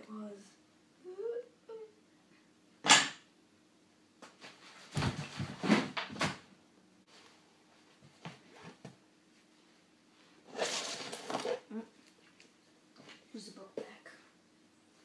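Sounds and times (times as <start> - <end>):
handling rustles and knocks: 4.2 - 6.4.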